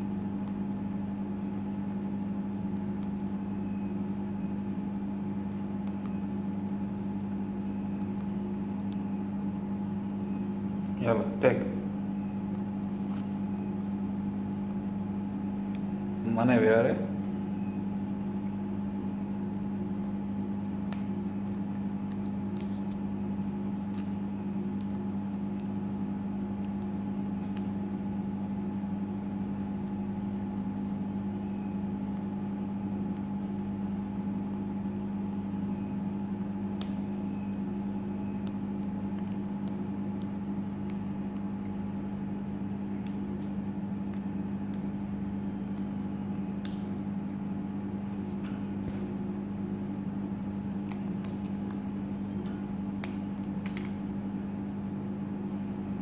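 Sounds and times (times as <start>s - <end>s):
low electrical hum: 0.0s - 56.0s
parrot beak cracking seeds: 20.0s - 34.6s, 35.3s - 47.6s, 50.6s - 54.2s.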